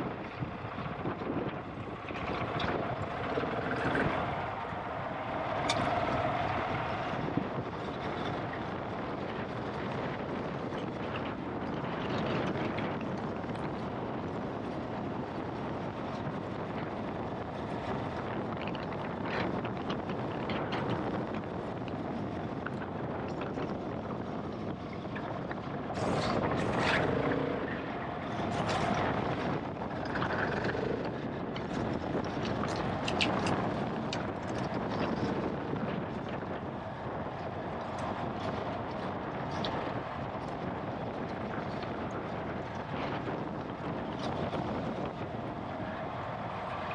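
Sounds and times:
wind noise on microphone: 0.0 - 46.9.

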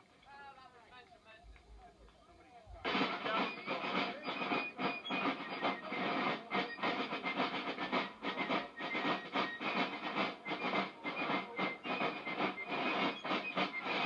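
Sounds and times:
drums beating fast: 2.7 - 14.0
high fife notes: 2.8 - 14.0.

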